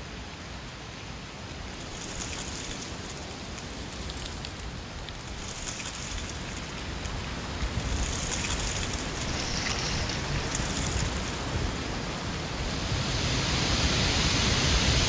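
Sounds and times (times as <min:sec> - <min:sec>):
dry leaves rustling in wind: 0:00.0 - 0:15.0
low wind rumble: 0:01.4 - 0:15.0.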